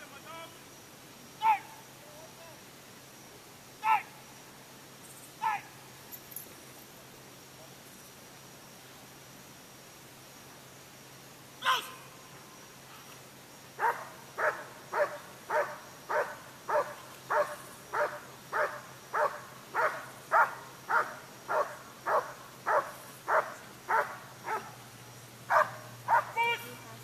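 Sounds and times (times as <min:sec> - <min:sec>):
dog barking: 0:13.8 - 0:24.8, 0:25.5 - 0:26.4.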